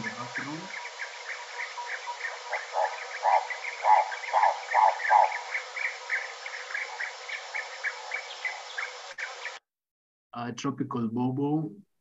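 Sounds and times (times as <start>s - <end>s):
birds chirping: 0.0s - 9.6s
turaco calling: 0.0s - 9.6s.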